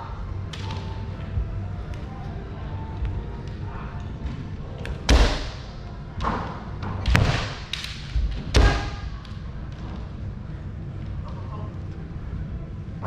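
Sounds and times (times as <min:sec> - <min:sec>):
bamboo sword strikes: 0:05.1 - 0:05.7, 0:07.0 - 0:09.1.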